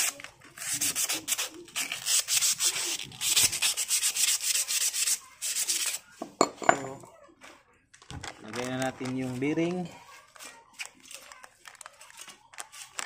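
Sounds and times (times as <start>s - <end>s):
sandpaper rubbing on steel: 0.0s - 6.0s.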